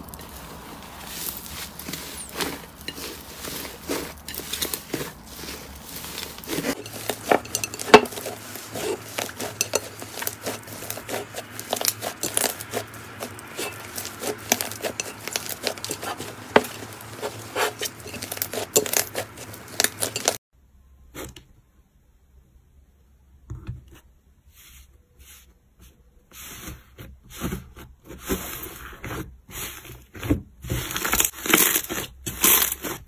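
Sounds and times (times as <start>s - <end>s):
hands squishing slime: 0.0s - 20.4s.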